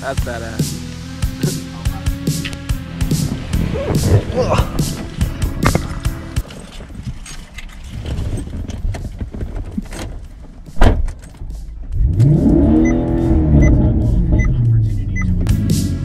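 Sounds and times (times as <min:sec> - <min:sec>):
sharp thump: 0:10.8 - 0:11.5
engine revving: 0:11.9 - 0:16.0.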